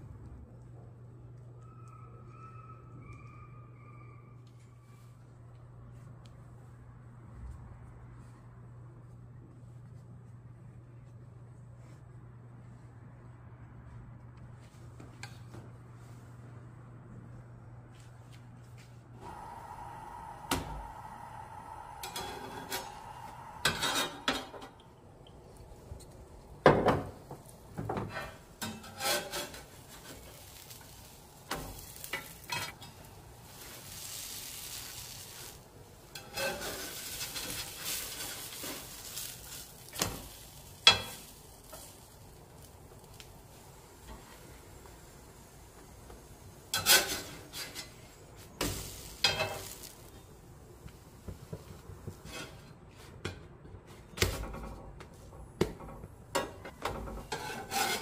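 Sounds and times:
dough sizzling: 19.2 - 52.6, 56.3 - 58.0
metal spatula scraping griddle: 22.0 - 24.8, 28.0 - 42.2, 46.7 - 50.1, 52.2 - 53.0, 56.8 - 58.0.

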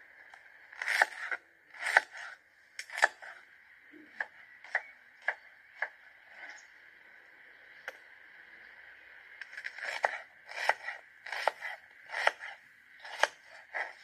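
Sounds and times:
knife chopping onion on wooden board: 0.8 - 3.4, 9.7 - 14.0.

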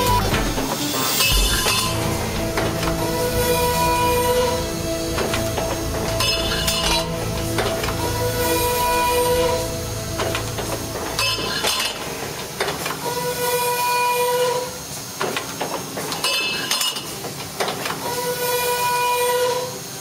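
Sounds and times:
saw ringing tone: 0.0 - 13.4.

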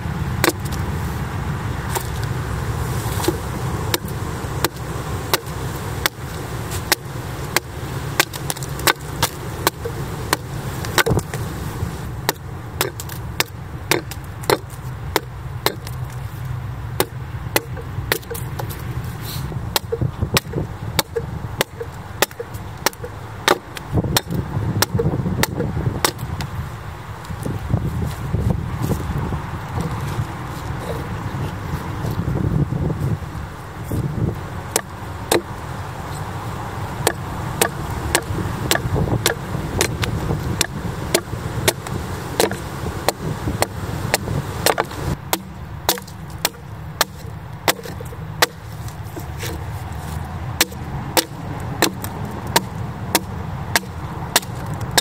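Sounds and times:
axe chopping wood: 0.4 - 0.8, 1.9 - 2.2, 3.1 - 11.5, 12.1 - 16.0, 17.0 - 18.9, 19.7 - 26.5, 34.2 - 35.5, 37.0 - 55.0.

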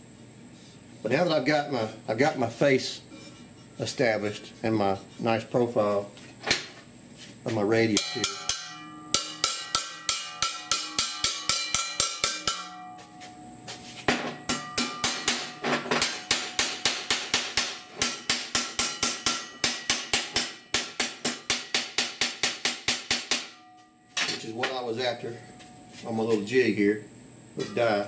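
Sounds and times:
hammer striking sheet metal: 7.9 - 13.5, 14.1 - 24.8.

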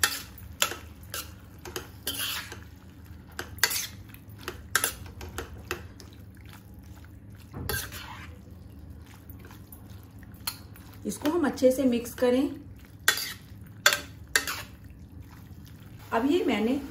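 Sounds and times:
spoon clinking and scraping pan: 0.0 - 2.7, 3.3 - 5.8, 7.7 - 8.3, 13.0 - 14.8
low steady hum: 0.0 - 16.9.

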